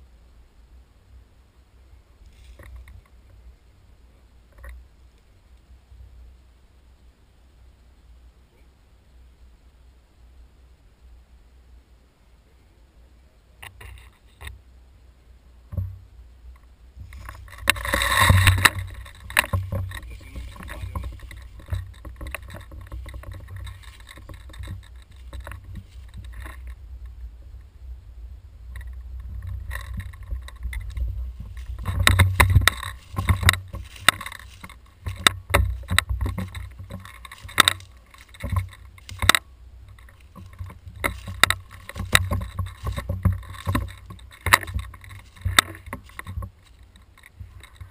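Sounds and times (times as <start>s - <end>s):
steady low rumble: 0.0s - 47.9s
footsteps crunching through dry leaves: 17.0s - 26.4s, 29.8s - 39.3s, 39.9s - 47.9s
camera handling knocks and rustles: 29.4s - 47.9s.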